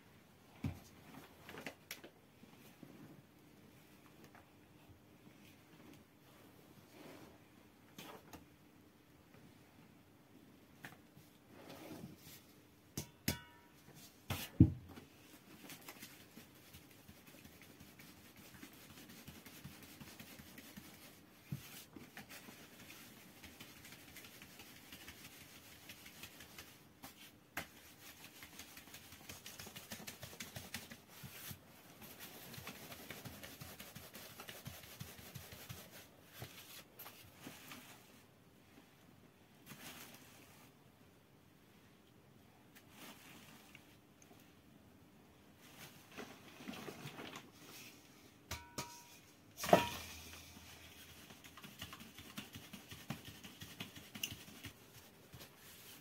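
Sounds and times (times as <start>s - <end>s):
flour sieve swishing: 49.6s - 56.0s.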